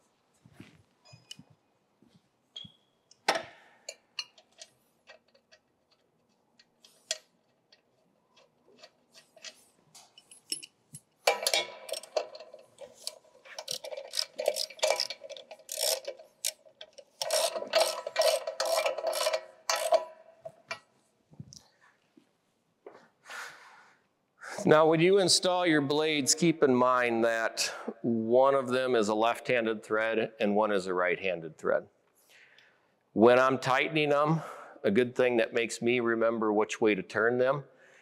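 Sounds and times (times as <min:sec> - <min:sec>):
metal clinks and knocks: 0:07.7 - 0:20.9
ratchet wrench clicking: 0:11.3 - 0:20.1.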